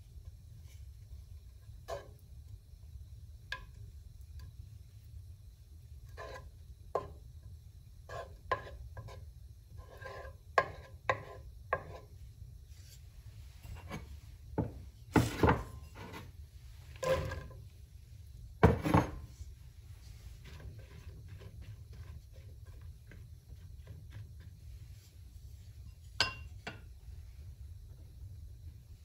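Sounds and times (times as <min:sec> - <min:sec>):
low steady hum: 0:00.0 - 0:29.0
wooden spatula scraping frying pan: 0:06.1 - 0:07.2, 0:08.0 - 0:17.6, 0:18.6 - 0:19.4, 0:20.0 - 0:25.2.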